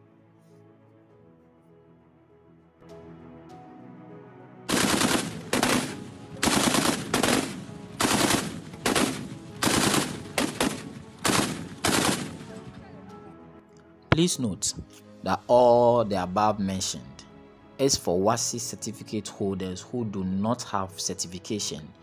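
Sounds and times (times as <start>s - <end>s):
faint background music: 0.0s - 22.0s
autocannon automatic fire: 4.7s - 12.5s.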